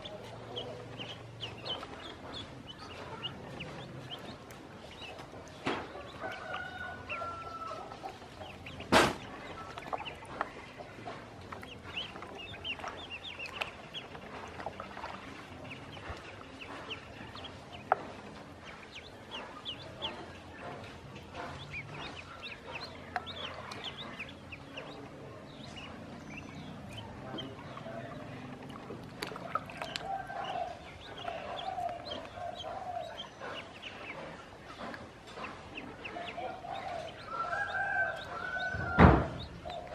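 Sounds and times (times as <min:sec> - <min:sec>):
ducklings peeping: 0:00.0 - 0:39.9
sharp knock: 0:08.9 - 0:09.3, 0:38.8 - 0:39.4.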